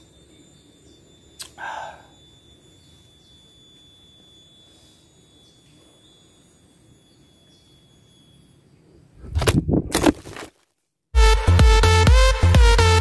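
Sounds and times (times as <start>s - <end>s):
high-pitched insect drone: 0.0s - 8.7s
faint short chirps: 0.2s - 9.1s.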